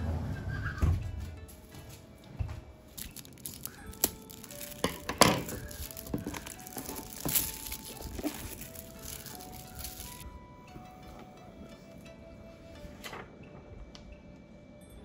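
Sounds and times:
slow background music: 0.0 - 15.0
crinkling: 3.0 - 10.2
sharp crackles: 3.0 - 10.2.

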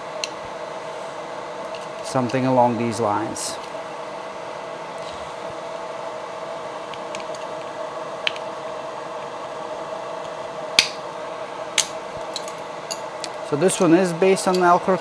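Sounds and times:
fan humming: 0.0 - 15.0.

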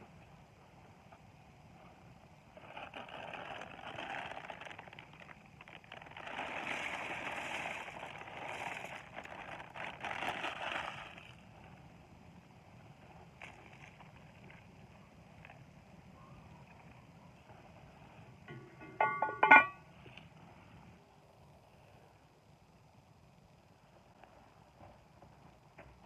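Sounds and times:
noodles pattering into a pot: 2.6 - 11.4
plastic package rustling: 2.6 - 11.4.

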